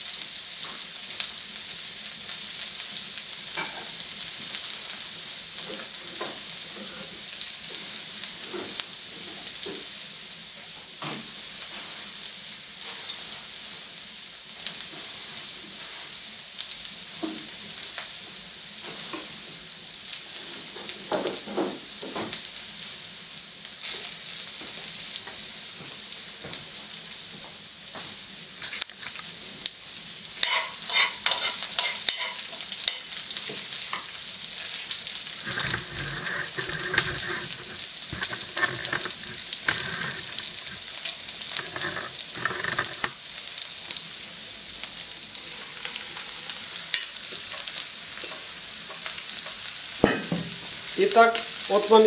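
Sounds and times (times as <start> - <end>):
onion sizzling in hot oil: 0.0 - 52.0
utensil scraping a pan: 30.4 - 33.1, 35.3 - 43.2.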